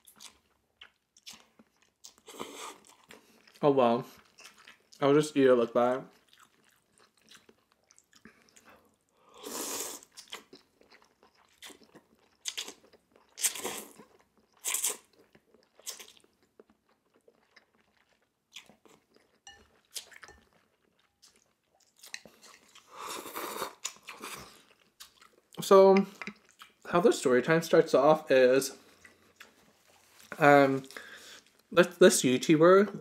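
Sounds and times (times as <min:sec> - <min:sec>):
chewing and mouth sounds: 0:00.0 - 0:05.0, 0:06.0 - 0:09.1, 0:09.9 - 0:26.9, 0:28.8 - 0:31.7
slurping noodles: 0:09.3 - 0:10.5, 0:22.5 - 0:24.7.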